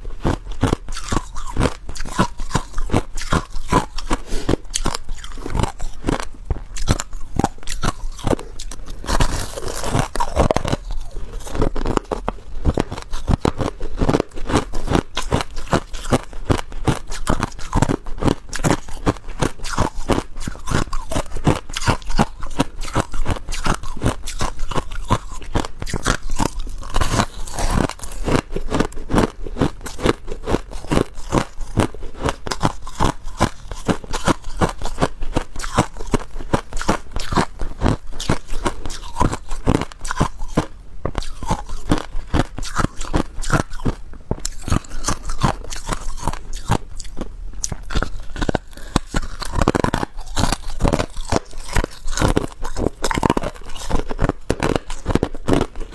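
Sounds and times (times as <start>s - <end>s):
ice crunching while chewed: 0.0s - 55.9s.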